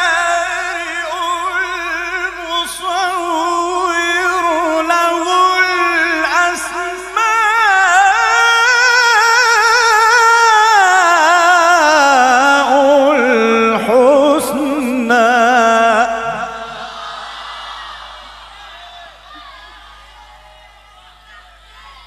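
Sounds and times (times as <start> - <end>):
man reciting melodically: 0.0 - 17.0.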